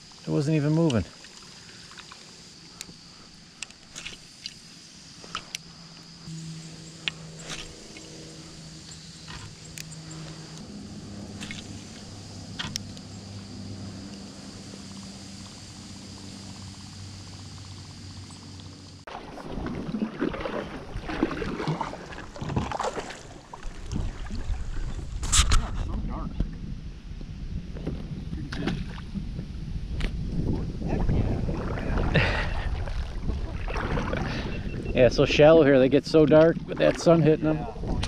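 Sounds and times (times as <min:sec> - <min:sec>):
boat engine humming: 0:00.0 - 0:25.1
gusty wind on microphone: 0:23.6 - 0:35.3, 0:37.4 - 0:38.0.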